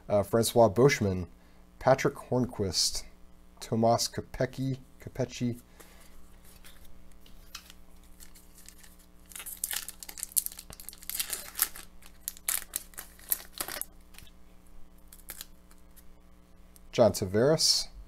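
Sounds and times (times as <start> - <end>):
faint steady hum: 0.0 - 18.0
foil wrapper crinkling and tearing: 7.4 - 14.3, 15.0 - 16.0.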